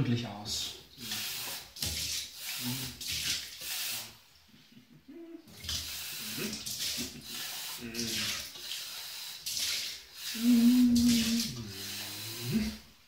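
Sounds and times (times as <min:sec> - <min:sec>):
water splashing into a steel sink: 0:01.0 - 0:04.1, 0:05.5 - 0:12.8.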